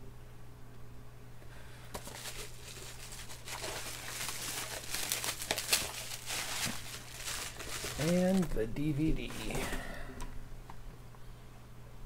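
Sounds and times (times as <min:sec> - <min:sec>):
bubble wrap crinkling: 0:01.8 - 0:08.6.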